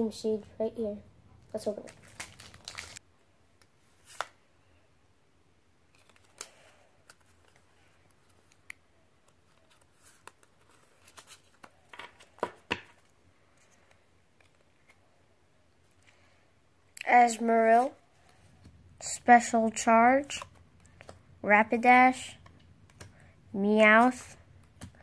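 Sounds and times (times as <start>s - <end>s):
cards sliding and rustling: 3.6s - 4.4s, 5.9s - 15.1s.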